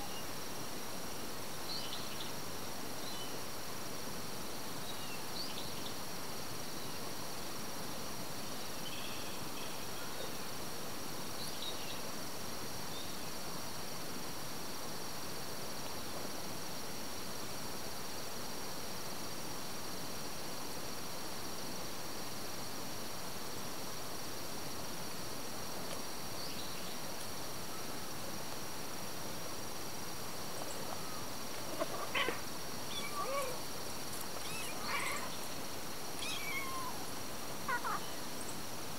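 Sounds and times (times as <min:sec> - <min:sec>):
insects droning in grass: 0:00.0 - 0:38.9
kitten mewing: 0:31.8 - 0:33.6, 0:34.4 - 0:35.3, 0:36.2 - 0:37.0, 0:37.7 - 0:38.0.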